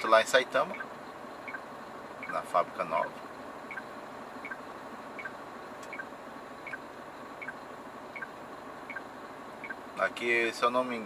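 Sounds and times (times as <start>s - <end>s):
truck cab noise on the move: 0.0s - 11.0s
turn signal ticking: 0.6s - 2.5s, 3.2s - 10.0s.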